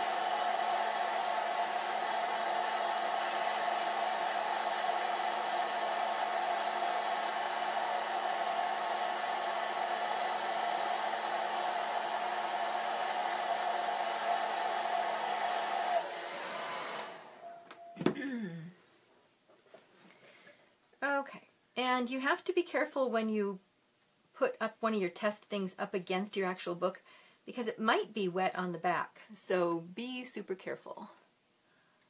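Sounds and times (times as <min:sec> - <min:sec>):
hair dryer running: 0:00.0 - 0:17.9.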